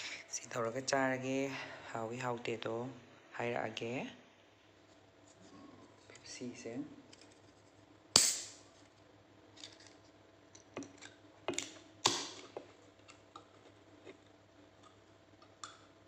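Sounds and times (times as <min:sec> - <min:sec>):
can opening crack and fizz: 0:08.2 - 0:08.6.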